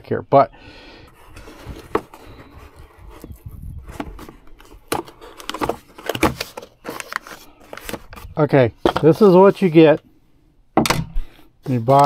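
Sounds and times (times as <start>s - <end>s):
cardboard box handling clicks and knocks: 1.3s - 8.2s.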